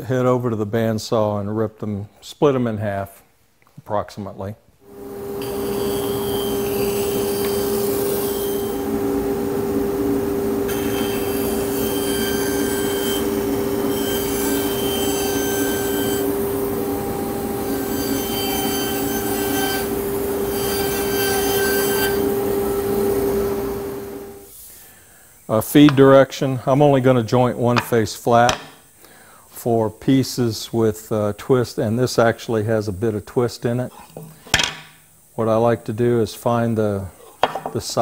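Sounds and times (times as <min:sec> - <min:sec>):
bandsaw humming: 0:04.9 - 0:24.6
saw blade cutting boards: 0:04.9 - 0:24.7.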